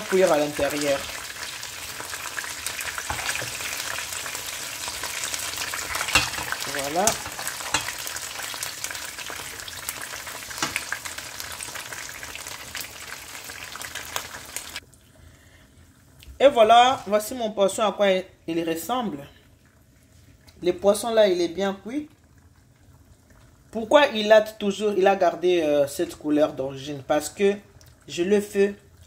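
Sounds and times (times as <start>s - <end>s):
oil sizzling in a pan: 0.0s - 14.9s.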